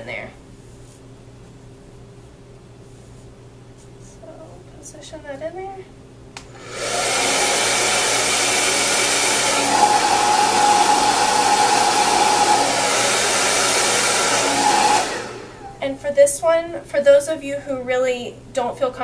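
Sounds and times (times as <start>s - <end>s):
hair dryer blowing: 6.4s - 15.8s.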